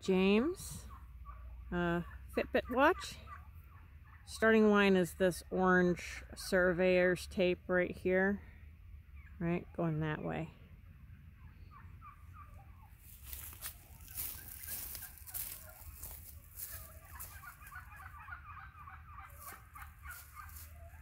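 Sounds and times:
poultry calling: 10.5 - 21.0
rustling noise: 13.0 - 17.8.

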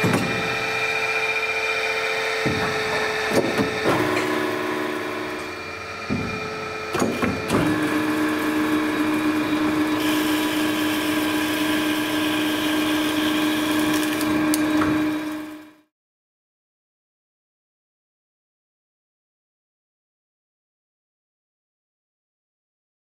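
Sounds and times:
bandsaw humming: 0.0 - 15.8
knocks: 2.4 - 4.4, 6.1 - 7.7.

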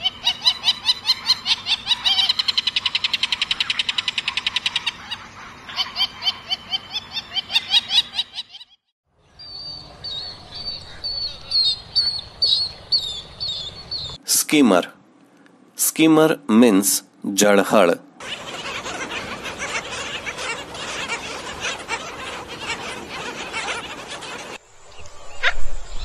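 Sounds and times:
bird chattering calls: 0.0 - 8.6, 18.2 - 24.6.

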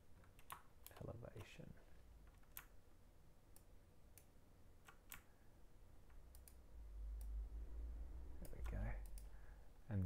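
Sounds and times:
computer mouse clicking: 0.2 - 1.5, 2.2 - 2.8, 3.5 - 5.3, 6.0 - 6.6, 8.4 - 9.3
faint low rumble: 5.6 - 10.0.

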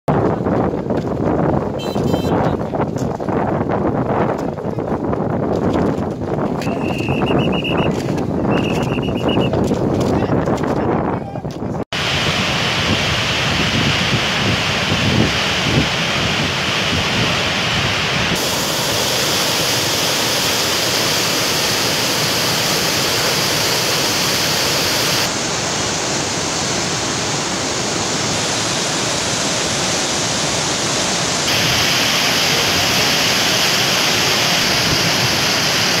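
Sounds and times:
floodwater rushing past bridge piers: 12.0 - 36.0.

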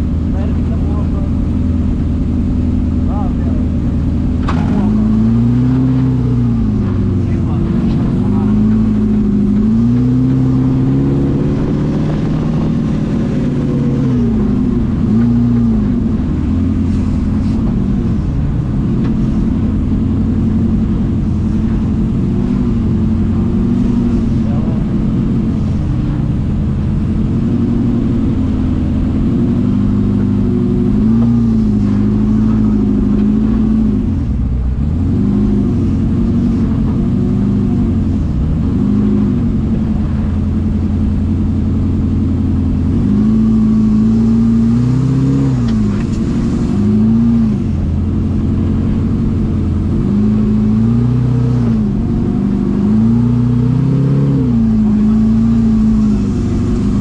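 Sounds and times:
off-road buggy engine revving: 0.0 - 57.0.

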